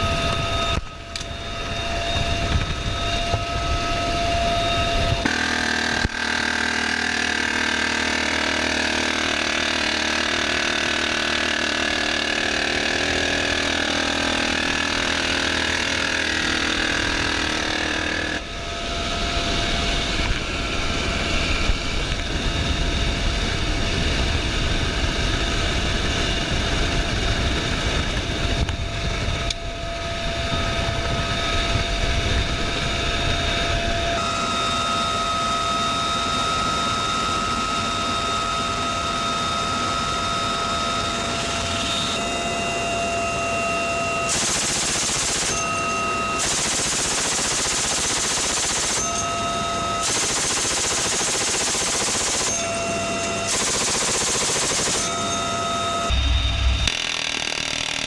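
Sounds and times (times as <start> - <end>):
helicopter turbines and rotor: 0.0 - 58.0.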